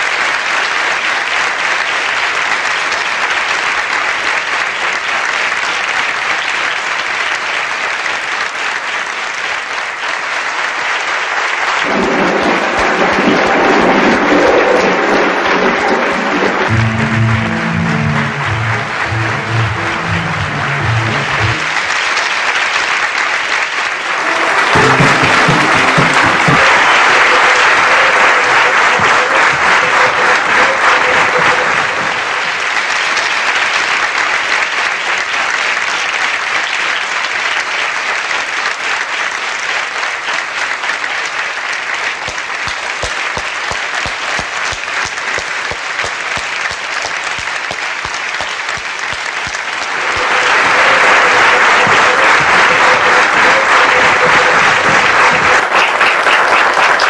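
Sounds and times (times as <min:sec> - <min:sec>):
audience applause: 0:00.0 - 0:57.0
instrumental music: 0:16.7 - 0:21.9, 0:24.2 - 0:27.4.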